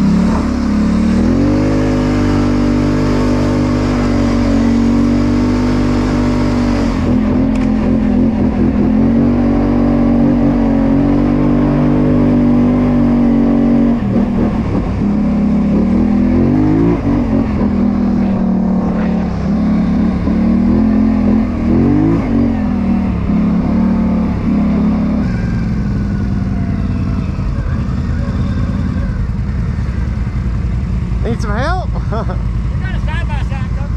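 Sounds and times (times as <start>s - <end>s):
atv engine under throttle: 0.0s - 33.9s.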